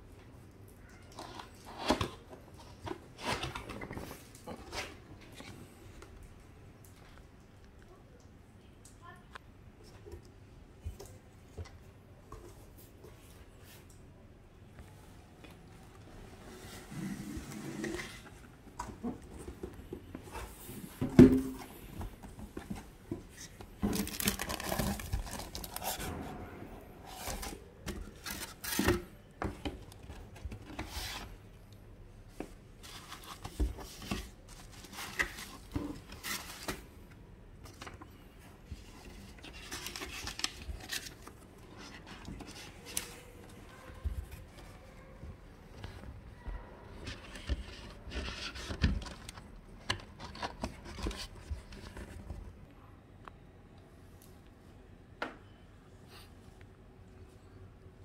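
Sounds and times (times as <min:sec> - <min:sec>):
packaging rustling and crinkling: 0:21.8 - 0:26.1, 0:27.1 - 0:29.0, 0:32.8 - 0:36.9, 0:38.7 - 0:44.6.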